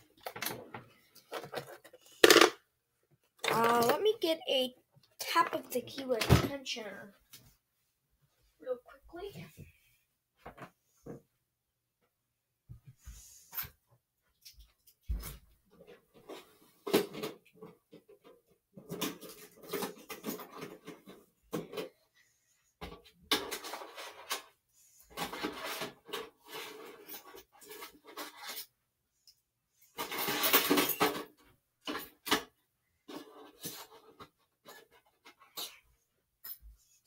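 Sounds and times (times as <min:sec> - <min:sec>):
small metal tools clattering: 0:25.2 - 0:28.8, 0:29.9 - 0:32.5.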